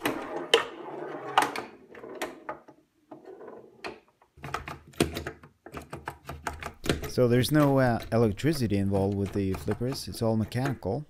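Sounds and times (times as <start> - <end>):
wooden flipper clacks: 4.5 - 10.9.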